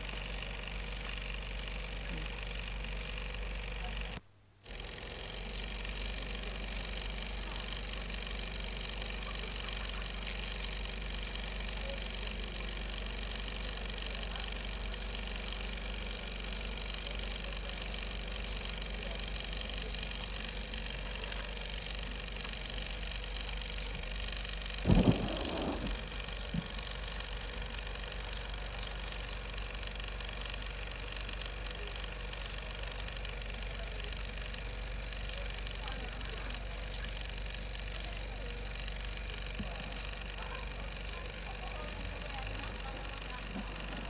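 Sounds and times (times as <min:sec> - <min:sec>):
steady hum: 0:00.0 - 0:36.9
even hiss: 0:24.8 - 0:27.4.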